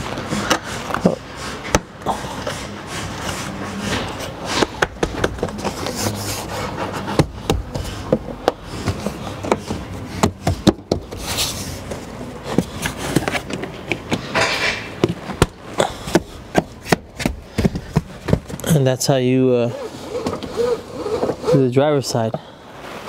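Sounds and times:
rubbing on rubber trim: 0.3s - 13.5s, 19.6s - 21.8s.

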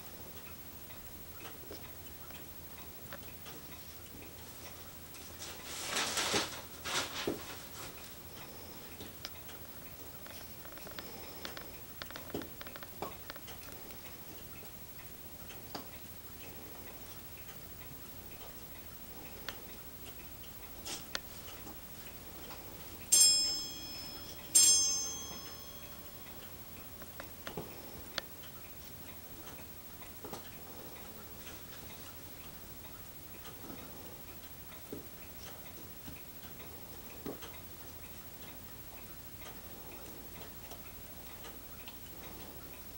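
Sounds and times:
faint ticking: 0.0s - 5.8s, 7.5s - 42.9s
ringing bell strikes: 23.1s - 26.7s.

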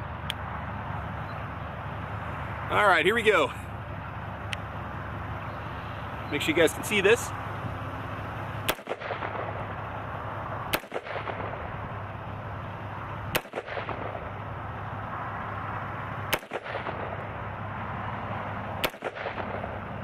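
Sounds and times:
gunshots with echo: 8.6s - 9.6s, 10.7s - 11.7s, 13.3s - 14.3s, 18.8s - 19.8s.

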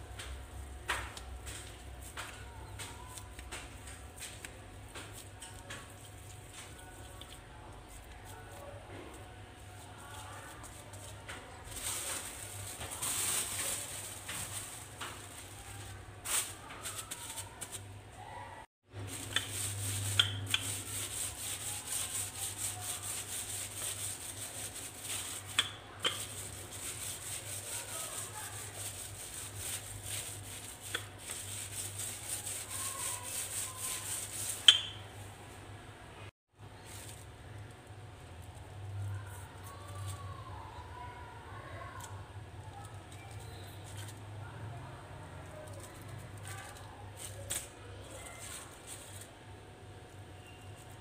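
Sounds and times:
plastic crinkling under rolling pin: 0.0s - 35.3s, 41.5s - 51.0s.

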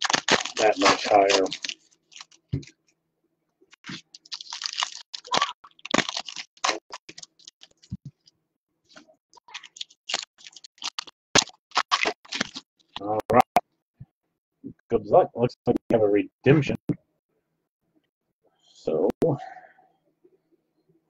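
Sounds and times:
foil wrapper crinkling and tearing: 0.0s - 2.7s, 3.7s - 8.0s, 8.9s - 13.0s.

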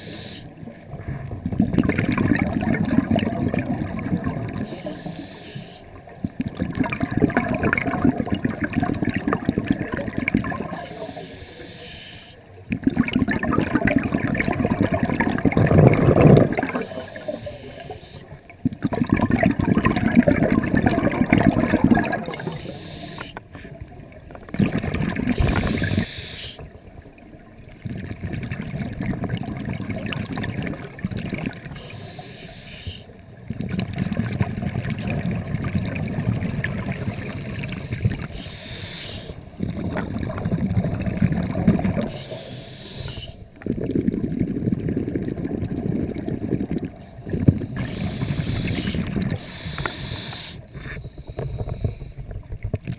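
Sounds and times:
hissing regulator inhalations: 0.0s - 0.5s, 4.6s - 6.0s, 10.7s - 12.4s, 16.6s - 18.4s, 22.3s - 23.6s, 25.5s - 26.7s, 31.8s - 33.1s, 37.7s - 39.5s, 42.0s - 43.5s, 47.4s - 52.3s
bubbling exhalations underwater: 1.4s - 4.8s, 6.2s - 10.9s, 12.7s - 17.4s, 18.6s - 22.8s, 24.5s - 26.1s, 39.5s - 42.2s, 43.6s - 49.6s.

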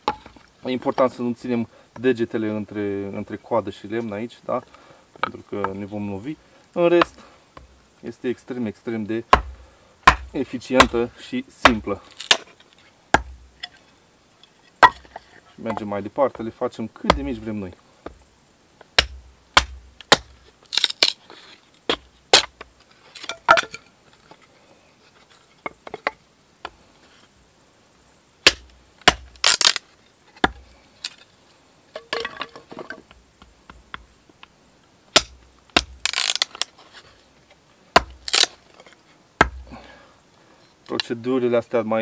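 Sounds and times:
wood splitting crackle: 9.3s - 13.8s, 14.8s - 15.9s, 18.9s - 23.9s, 28.4s - 31.2s, 35.1s - 36.8s, 38.0s - 39.6s.

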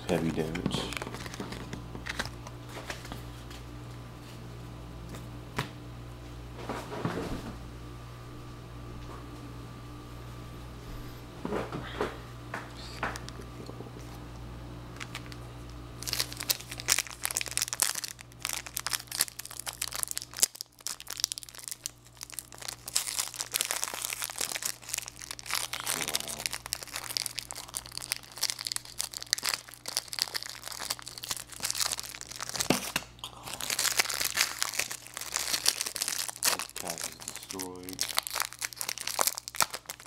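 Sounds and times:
foil wrappers tearing and crinkling: 0.1s - 3.2s, 15.0s - 15.4s, 16.0s - 40.0s.

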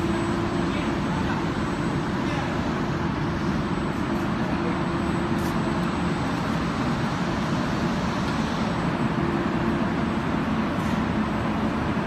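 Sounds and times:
pipe cutting machine running: 0.0s - 12.0s.

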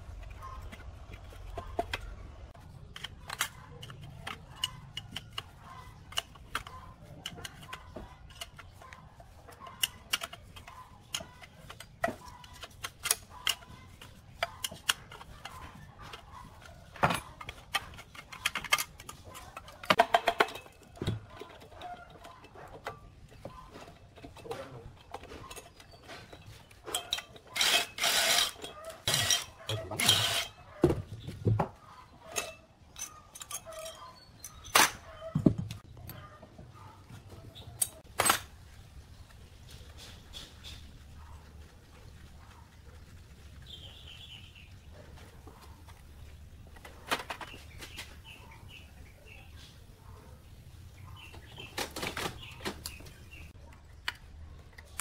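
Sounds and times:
hand tools clinking on metal: 2.9s - 30.6s, 32.2s - 35.3s.

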